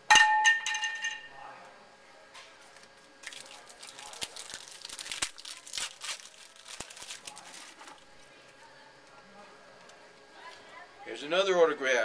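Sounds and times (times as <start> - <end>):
card pack crinkling: 3.2 - 8.3.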